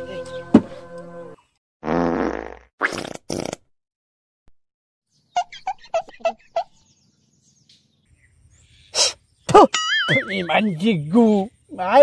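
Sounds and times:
bird chirping: 5.1s - 12.0s.

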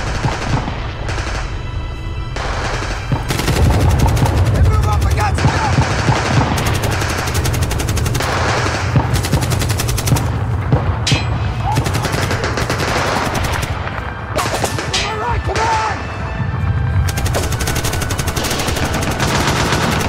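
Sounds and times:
automatic gunfire bursts: 2.5s - 10.4s, 11.8s - 13.8s, 17.1s - 20.0s.

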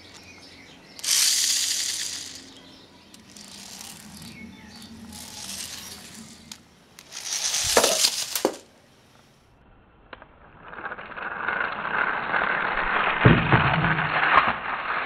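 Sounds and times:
plastic toy bike rattling and clicking: 1.0s - 8.6s, 10.7s - 13.2s.

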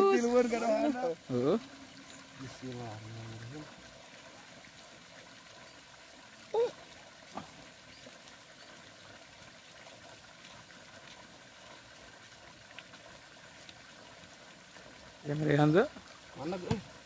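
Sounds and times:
faint watery hiss: 0.0s - 17.0s.

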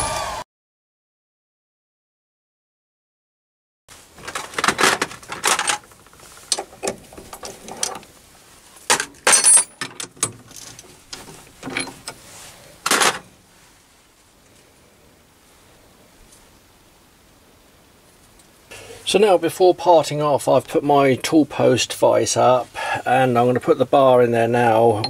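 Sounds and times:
metal tools clinking and scraping: 4.2s - 8.1s, 8.9s - 12.2s.

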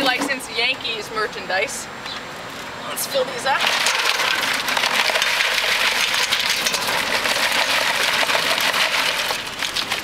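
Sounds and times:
ice cubes pouring into a bucket: 3.6s - 10.0s.

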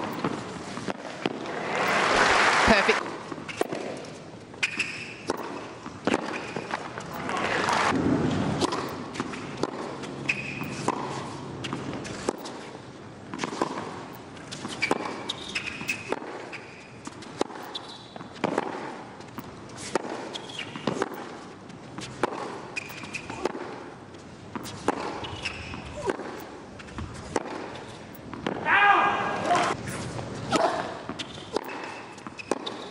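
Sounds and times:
tennis racket striking ball: 0.0s - 1.5s, 3.0s - 28.8s, 29.4s - 32.9s
ball bouncing on hard court: 0.0s - 2.0s, 4.6s - 7.3s, 7.9s - 12.6s, 13.2s - 23.9s, 24.5s - 28.8s, 29.4s - 32.9s
crowd cheering: 1.4s - 3.0s, 7.2s - 8.0s
shoe squeaks: 4.6s - 7.3s, 8.7s - 12.8s, 14.1s - 18.4s, 19.2s - 23.4s, 24.1s - 28.3s, 29.6s - 32.9s.

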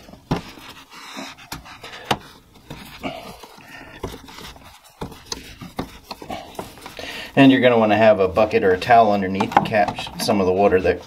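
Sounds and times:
plastic fittings clicking and rubbing: 0.0s - 11.0s
person breathing heavily: 0.8s - 7.4s.

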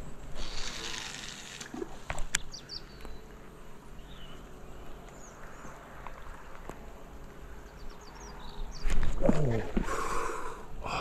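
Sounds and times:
faint steady background noise: 0.0s - 11.0s
fishing reel clicks: 0.4s - 1.7s
bird chirps: 2.3s - 3.3s.

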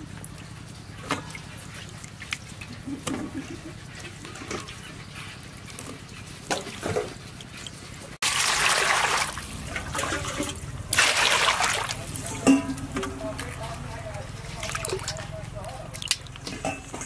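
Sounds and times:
water pouring into metal basin: 8.2s - 12.4s.

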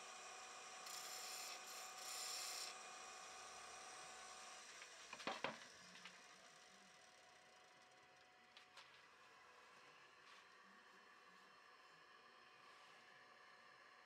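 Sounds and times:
wood lathe humming: 0.0s - 7.8s
gouge hissing cuts on wood: 0.4s - 3.2s.

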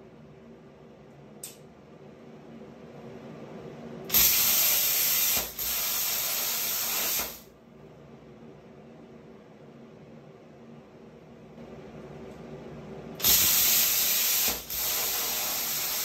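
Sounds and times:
plasma cutter hissing: 4.1s - 7.5s, 13.2s - 16.0s.

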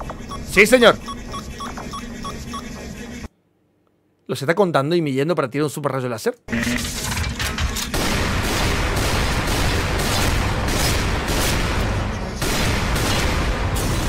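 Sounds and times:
gunfire barrage: 7.9s - 14.0s
explosion booms: 8.0s - 14.0s.

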